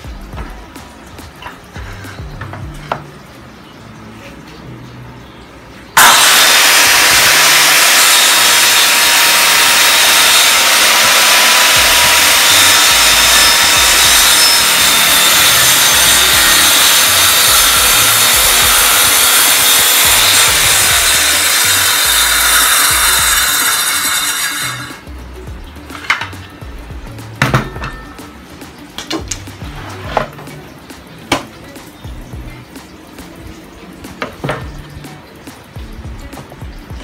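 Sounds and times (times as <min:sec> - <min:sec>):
circular saw cutting wood: 0:06.0 - 0:25.1.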